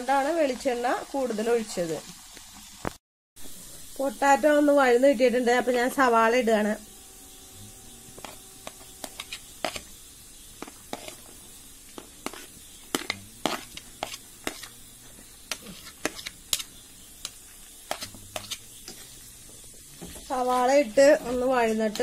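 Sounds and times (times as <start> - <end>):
faint frying sizzle: 0.0 - 22.0
spoon scraping a plastic plate: 8.1 - 9.9, 10.6 - 11.3, 11.9 - 14.8, 15.5 - 19.2.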